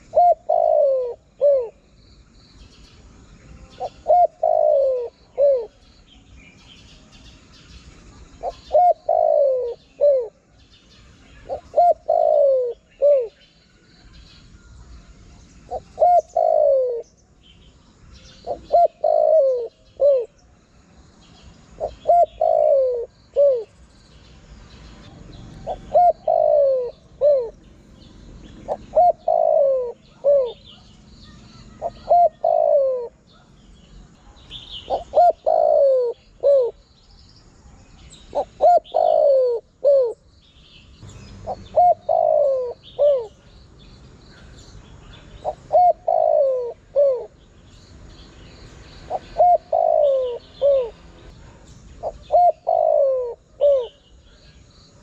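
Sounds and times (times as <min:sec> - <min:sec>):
dove cooing: 0:00.0 - 0:01.9, 0:03.7 - 0:05.8, 0:08.4 - 0:10.6, 0:11.3 - 0:13.4, 0:15.7 - 0:17.2, 0:18.3 - 0:20.5, 0:21.7 - 0:23.8, 0:25.0 - 0:27.7, 0:28.4 - 0:30.9, 0:31.6 - 0:33.5, 0:34.8 - 0:36.8, 0:38.2 - 0:40.3, 0:41.4 - 0:43.4, 0:45.2 - 0:47.4, 0:49.0 - 0:54.1.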